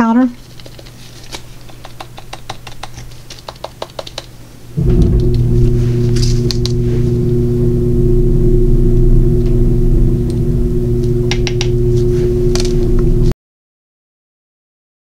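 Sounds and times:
jar and spatula tapping cup: 1.6s - 4.3s
low mechanical hum: 4.3s - 13.4s.

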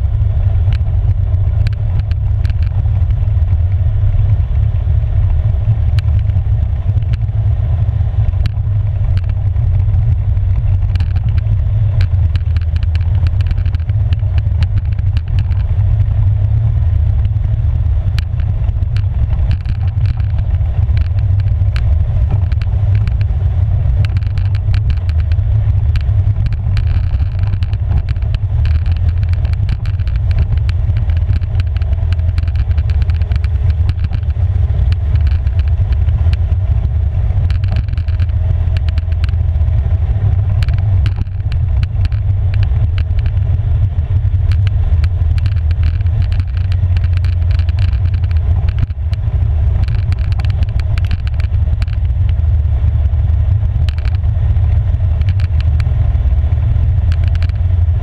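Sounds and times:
atv engine running: 0.0s - 58.0s
gravel clicks and knocks: 0.1s - 58.0s.

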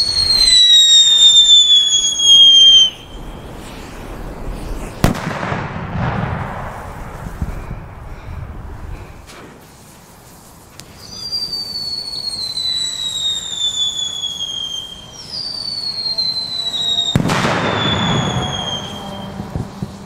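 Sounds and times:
firework whistles falling in pitch: 0.0s - 5.6s, 10.8s - 20.0s
loud rushing hiss: 0.0s - 20.0s.

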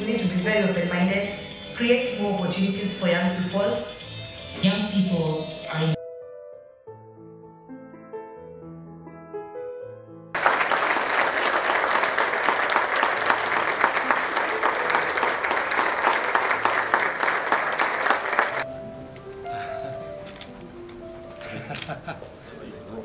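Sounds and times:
background music: 0.0s - 23.0s
audience applause: 10.4s - 18.7s.

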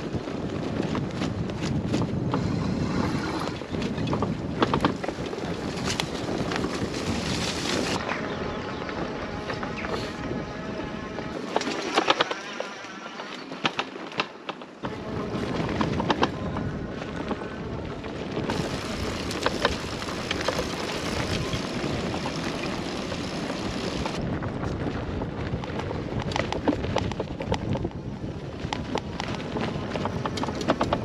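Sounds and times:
bike knocks and rattles: 0.0s - 2.8s, 3.6s - 8.0s, 13.4s - 16.8s, 18.3s - 31.0s
wind on microphone: 0.0s - 12.6s, 14.8s - 31.0s.

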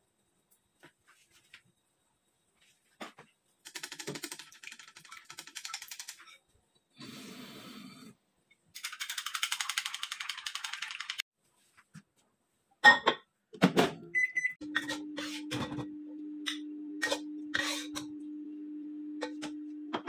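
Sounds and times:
microwave humming: 13.8s - 20.0s
microwave keypad beeps: 14.1s - 15.0s.

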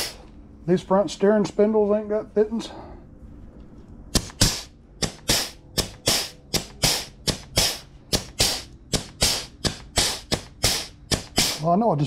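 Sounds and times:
pneumatic grease gun air pops: 0.0s - 0.2s, 4.1s - 11.6s.

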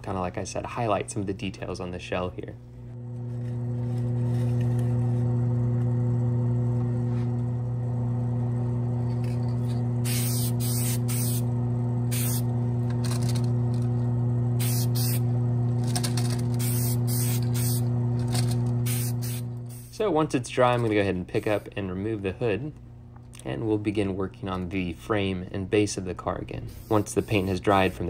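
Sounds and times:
electric motor hum: 2.7s - 20.2s
spray paint hissing bursts: 10.0s - 11.4s, 12.1s - 12.5s, 14.6s - 15.2s, 16.6s - 17.9s, 18.8s - 20.0s, 26.7s - 27.9s.

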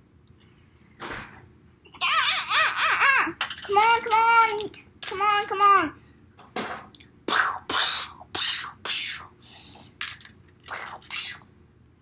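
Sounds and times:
child making whispered mouth noises: 7.3s - 10.0s, 10.6s - 11.5s.

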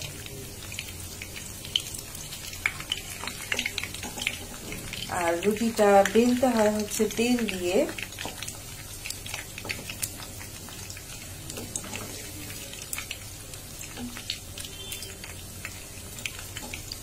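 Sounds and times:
oil sizzling and crackling: 0.0s - 17.0s
wooden spatula turning pastries: 0.0s - 17.0s.

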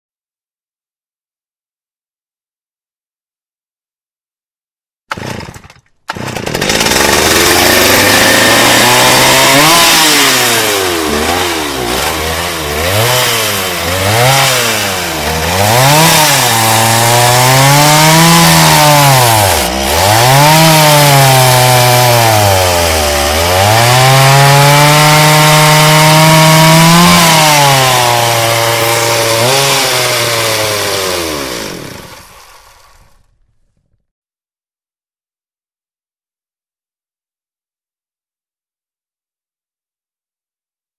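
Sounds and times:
chainsaw engine revving: 5.1s - 33.4s.

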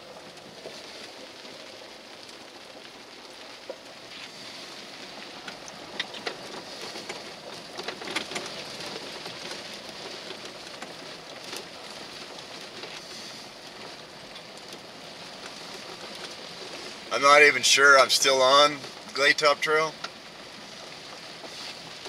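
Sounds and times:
rain pattering on vehicle roof: 0.0s - 22.0s
sharp raindrop ticks: 0.0s - 22.0s.

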